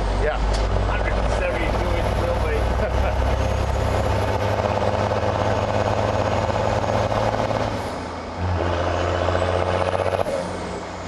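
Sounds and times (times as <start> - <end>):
diesel truck driving by: 0.0 - 11.0.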